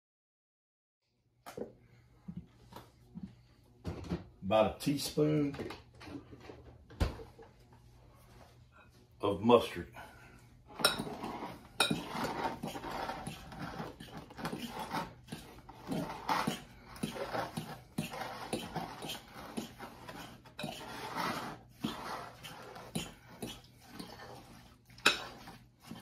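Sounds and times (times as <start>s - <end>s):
fork scraping and clinking bowl: 10.7s - 26.0s.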